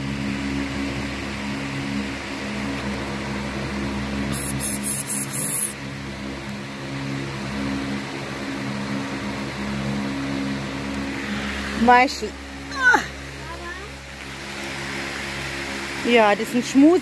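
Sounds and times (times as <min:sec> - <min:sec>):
steady mechanical hum: 0:00.0 - 0:17.0
crackling high hiss: 0:04.2 - 0:05.8.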